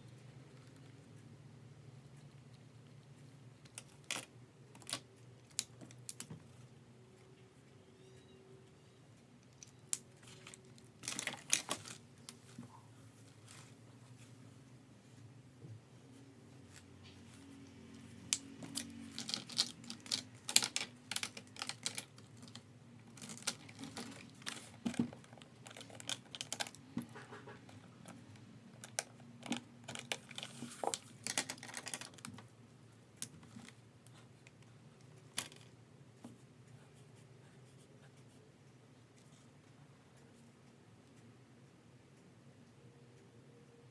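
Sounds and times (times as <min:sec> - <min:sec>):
plastic pens clattering: 0:09.5 - 0:12.4, 0:18.3 - 0:32.5, 0:35.3 - 0:35.7.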